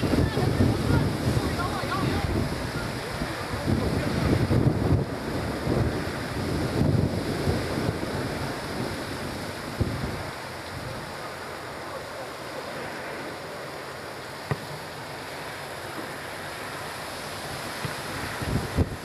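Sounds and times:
wind buffeting microphone: 0.0 - 11.4, 16.0 - 19.0
steady hiss: 0.0 - 19.0.

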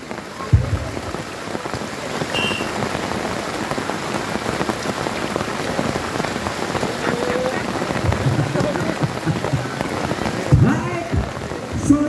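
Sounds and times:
heavy rain falling: 0.0 - 12.0.

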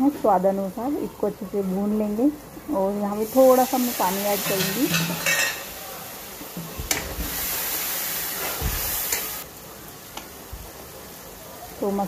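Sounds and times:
masala hissing and sizzling in pan: 0.0 - 12.0.

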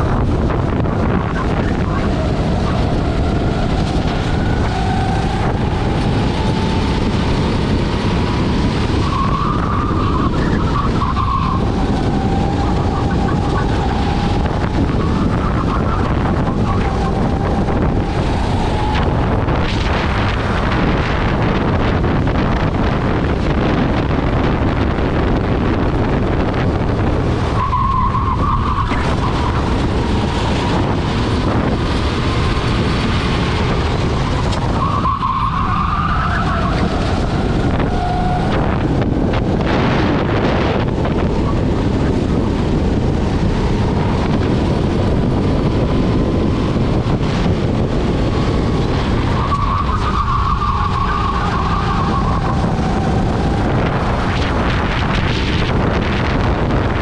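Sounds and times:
kart engine running: 0.0 - 57.0
wind rush on microphone: 0.0 - 57.0
tyre squeals: 34.2 - 38.6, 49.3 - 53.8.

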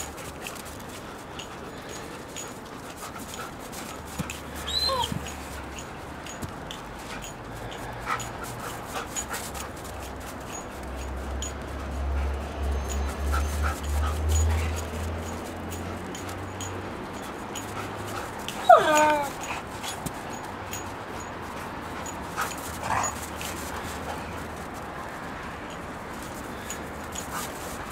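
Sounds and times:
dog yelping: 4.5 - 5.6, 18.5 - 20.0.

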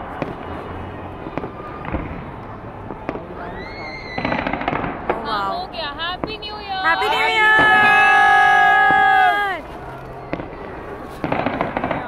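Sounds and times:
firework crackling: 0.2 - 12.0
rising firework whistle: 3.4 - 4.5.

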